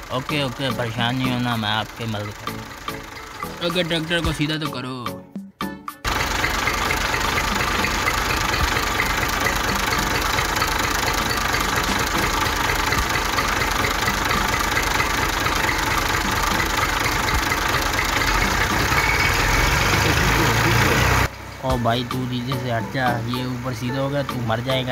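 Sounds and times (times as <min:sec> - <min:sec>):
toy tractor engine running: 0:00.0 - 0:04.6, 0:06.0 - 0:21.3.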